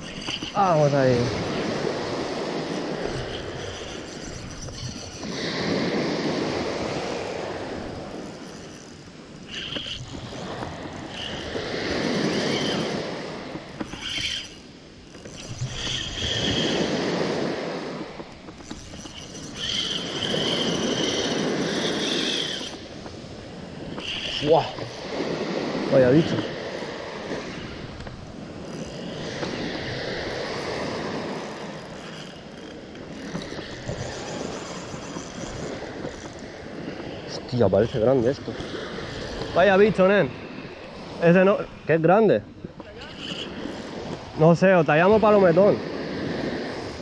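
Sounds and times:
surf washing onto sand: 0.0s - 3.1s
fishing reel whirring: 0.0s - 41.5s, 43.0s - 47.0s.

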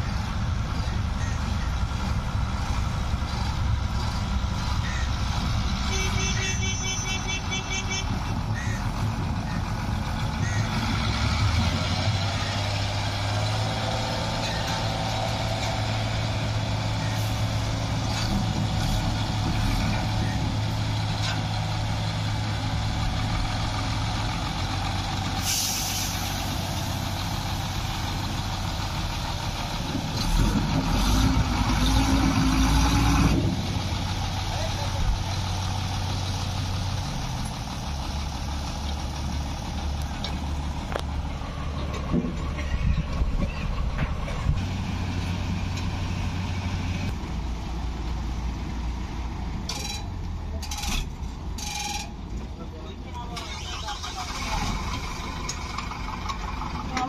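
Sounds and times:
diesel engine running: 0.0s - 57.0s
air hiss: 25.4s - 26.5s
short high squeaks: 50.7s - 52.2s.

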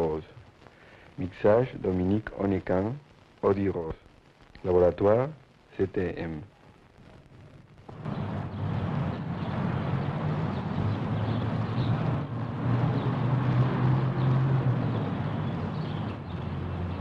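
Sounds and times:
street traffic rumble: 7.9s - 17.0s
low engine hum: 8.0s - 17.0s.

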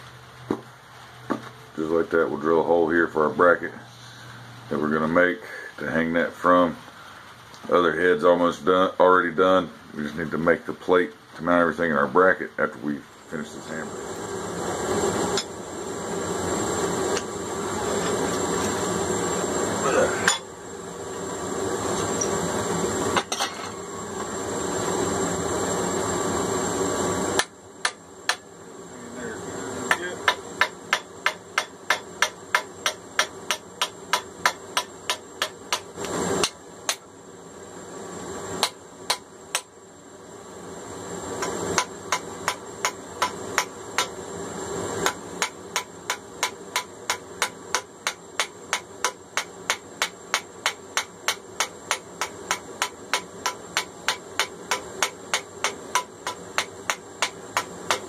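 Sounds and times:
hammer striking steel: 29.9s - 37.1s, 38.6s - 39.7s, 41.4s - 44.2s, 45.0s - 58.0s.

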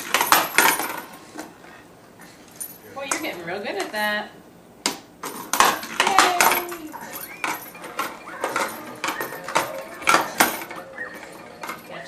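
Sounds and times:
plastic balls clacking on ramp toy: 5.2s - 11.8s.

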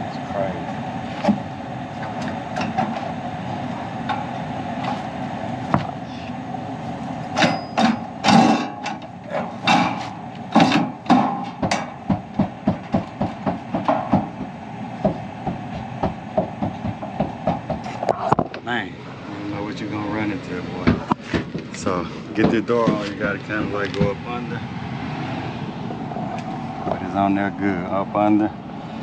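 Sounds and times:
mechanical hum: 0.0s - 29.0s
sheet metal knocks and rattles: 9.6s - 14.5s.

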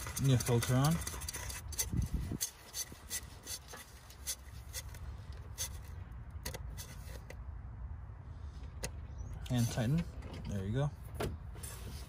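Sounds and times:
oil filter clicking and scraping: 0.0s - 7.5s.

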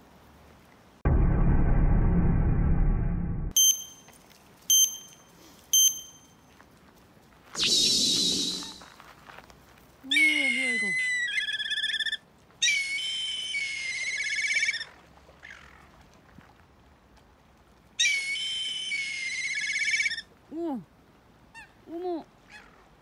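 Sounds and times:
shrill whistle sound effect: 7.6s - 8.8s.

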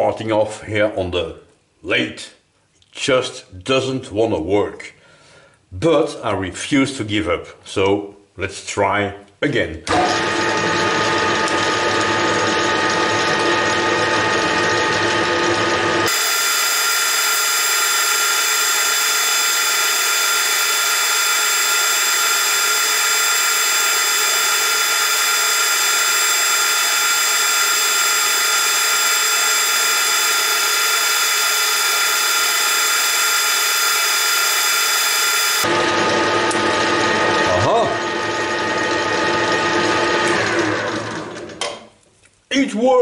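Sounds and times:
metal lathe gear whine: 11.5s - 40.6s.

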